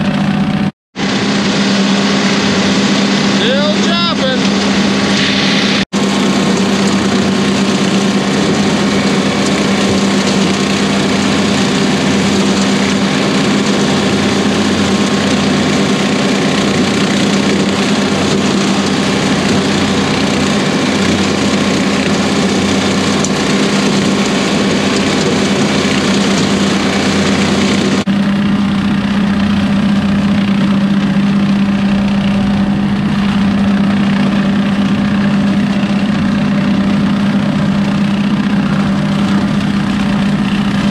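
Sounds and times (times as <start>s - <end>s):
rotary cutter chopping corn stalks: 0.0s - 40.9s
tractor diesel engine running: 0.0s - 40.9s.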